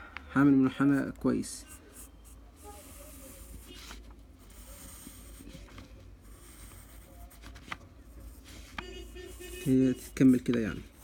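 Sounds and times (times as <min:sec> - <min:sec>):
pencil scratching on paper: 0:01.7 - 0:11.0.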